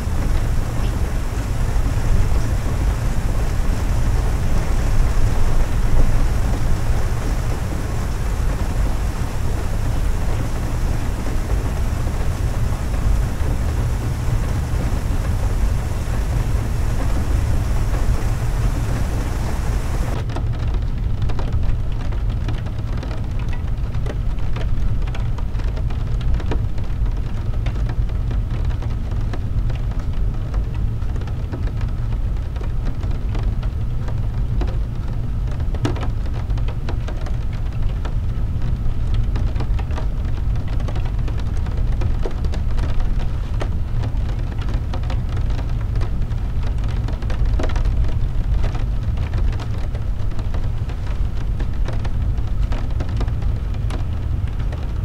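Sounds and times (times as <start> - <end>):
high hiss: 0.0 - 20.2
rain ticking on windshield: 0.0 - 55.0
tyres and engine rumble on wet road: 0.0 - 55.0.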